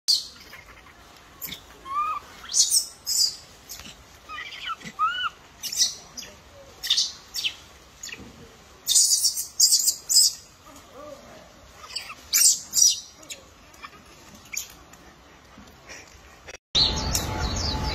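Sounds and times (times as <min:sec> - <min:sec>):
baby monkey coo calls: 0:00.1 - 0:08.2, 0:08.8 - 0:10.4, 0:11.7 - 0:14.8.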